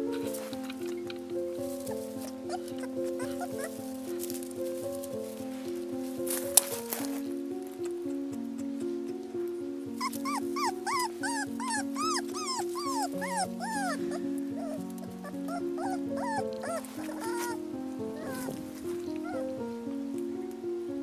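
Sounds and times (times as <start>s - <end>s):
puppy whimpering: 0.0s - 1.9s, 2.5s - 3.8s, 10.0s - 19.6s
background music with held notes: 0.0s - 21.0s.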